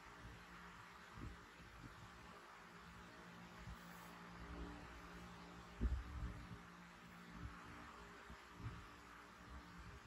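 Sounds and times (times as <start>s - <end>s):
faint room hiss: 0.0s - 10.0s
soft low bumps: 5.8s - 6.6s.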